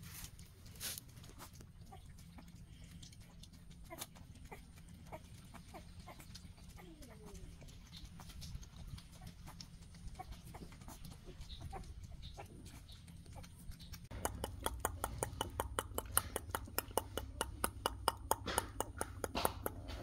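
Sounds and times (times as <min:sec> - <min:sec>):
puppies lapping clicks: 0:00.0 - 0:20.0
puppies smacking mouths: 0:00.0 - 0:20.0.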